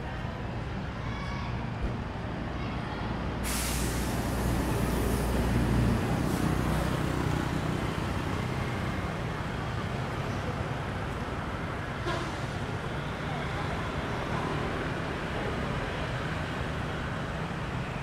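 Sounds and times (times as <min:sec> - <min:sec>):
street traffic: 0:00.0 - 0:18.0
large vehicle engine rumble: 0:01.6 - 0:18.0
loud hiss of air: 0:03.4 - 0:06.8.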